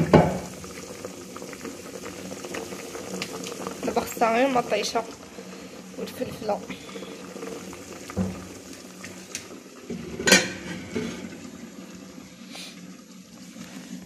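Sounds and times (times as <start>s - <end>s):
water simmering: 0.0s - 14.0s
metal pots clanking: 9.9s - 11.4s.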